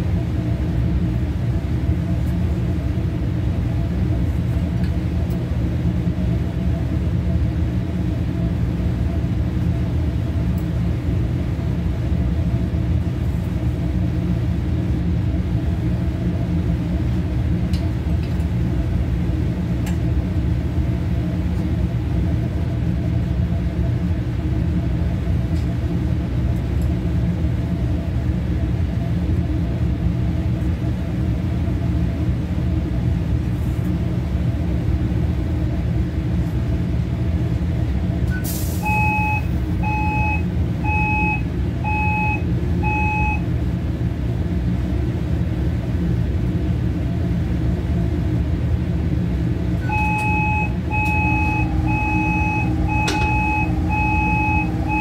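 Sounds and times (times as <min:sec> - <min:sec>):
short electronic beeps: 0:38.8 - 0:43.4, 0:49.8 - 0:55.0
kitchen equipment hum: 0:50.1 - 0:55.0.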